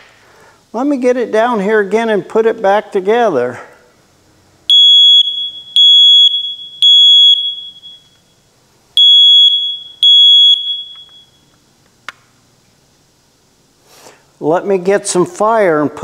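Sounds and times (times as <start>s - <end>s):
smoke alarm beeping: 4.7s - 11.6s.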